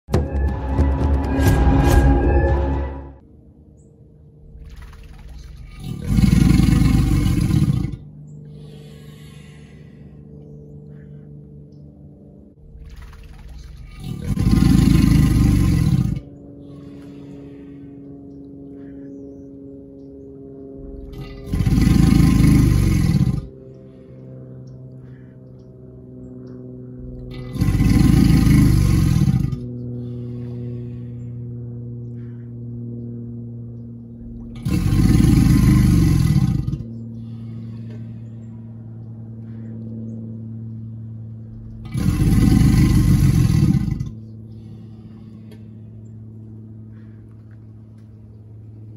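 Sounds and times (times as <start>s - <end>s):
low mechanical hum: 0.0s - 48.9s
alligator bellowing: 4.6s - 10.0s, 12.7s - 17.8s, 20.9s - 24.0s, 27.2s - 31.0s, 34.5s - 38.3s, 41.8s - 45.6s.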